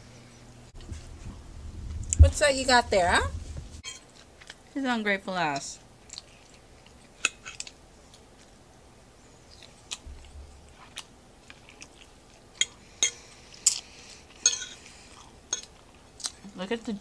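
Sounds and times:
close-up chewing salad: 4.0 - 4.8, 5.8 - 8.6, 9.4 - 16.6.

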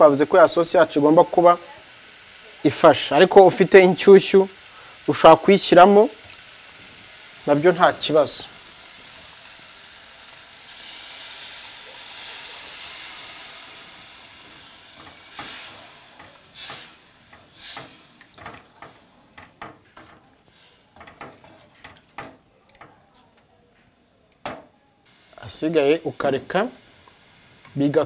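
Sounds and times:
stew sizzling hiss: 0.0 - 23.4, 25.0 - 28.0
wooden spoon scraping pot: 15.3 - 23.3.

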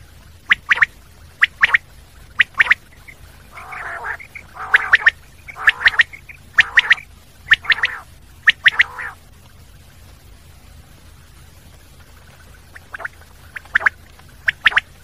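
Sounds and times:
quail whistled calls: 0.5 - 9.2, 12.7 - 14.9.

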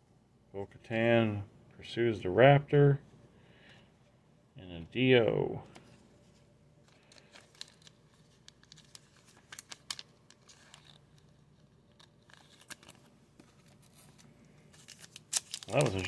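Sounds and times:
sharp plastic crackles: 6.8 - 13.1, 14.0 - 16.0
plastic sleeve crinkling: 6.8 - 16.0.

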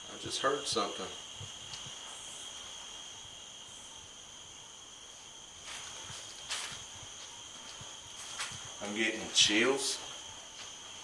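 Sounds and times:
night insects trilling: 0.0 - 11.0
soft scuffs: 5.6 - 9.0.

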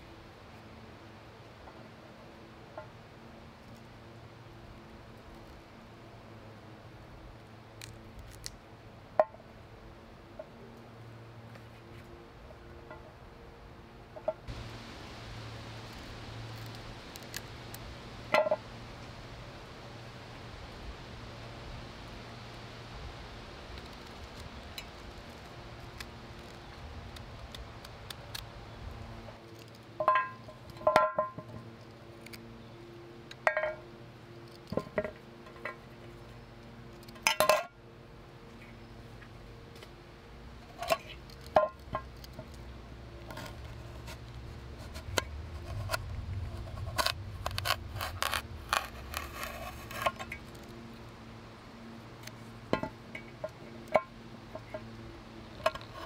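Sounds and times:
peeler scraping vegetables: 46.6 - 50.2.

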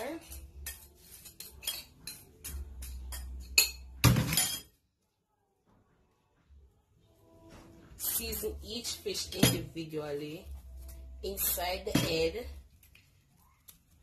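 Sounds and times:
spoon clinking against a plate: 0.0 - 4.8.

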